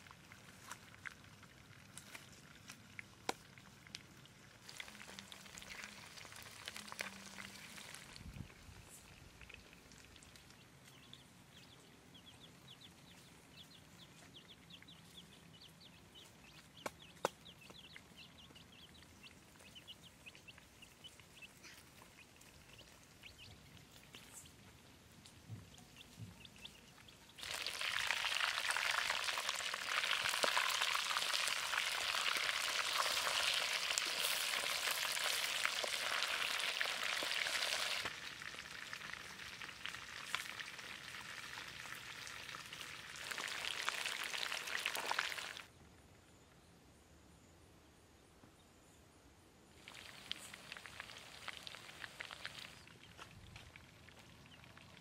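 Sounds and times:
baby chicks peeping: 8.4s - 27.4s
food sizzling in hot oil: 27.4s - 45.6s.

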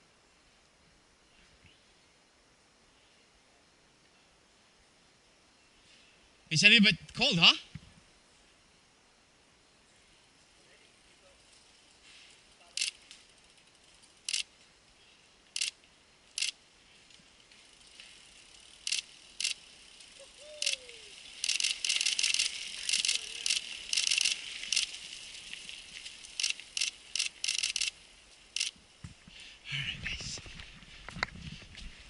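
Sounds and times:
bike chains and hubs clicking: 11.4s - 14.5s, 15.5s - 28.8s.

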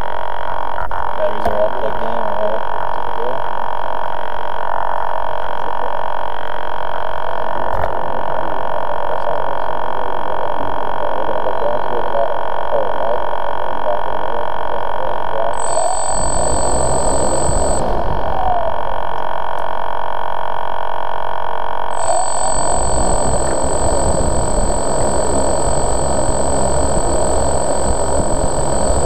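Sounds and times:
drone propellers whining: 15.6s - 19.2s, 21.9s - 29.0s.

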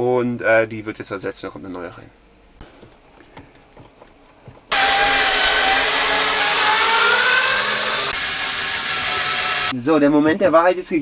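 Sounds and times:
cordless screwdriver whine: 4.7s - 9.7s.

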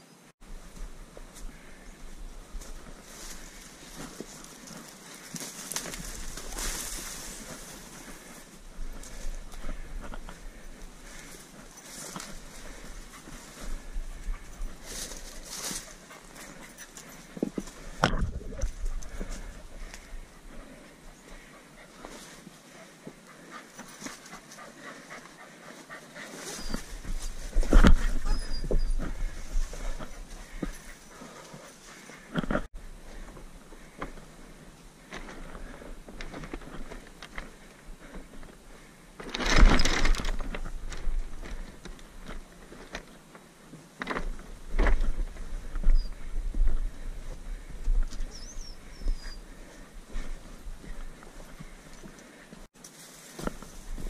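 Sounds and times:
person panting: 1.4s - 39.2s, 45.4s - 52.7s
footsteps on loose rocks: 2.5s - 22.4s, 26.2s - 34.3s, 35.0s - 54.0s
wind rumble on microphone: 17.9s - 20.3s
small bird chirping: 48.2s - 49.4s.

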